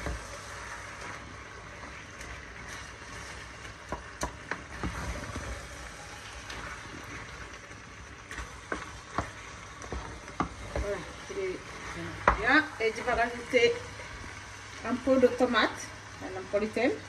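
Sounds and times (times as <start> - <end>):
spoon stirring in pot: 0.0 - 13.2
food sizzling: 0.0 - 17.0.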